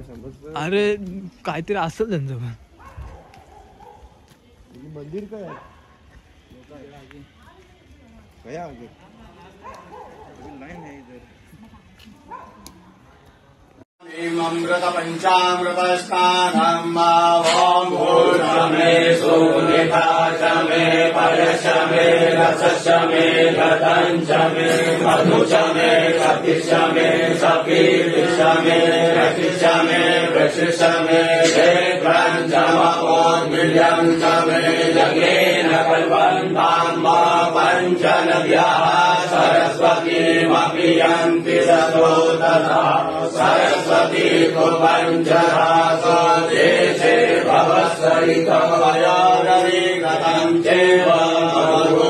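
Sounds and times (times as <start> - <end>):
person chanting mantras: 14.0 - 52.0.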